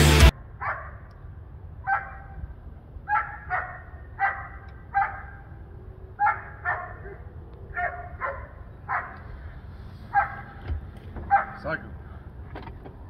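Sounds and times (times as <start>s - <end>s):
dog barking: 0.6s - 1.0s, 1.8s - 2.4s, 3.1s - 5.5s, 6.2s - 9.2s, 10.1s - 10.6s, 11.3s - 11.7s.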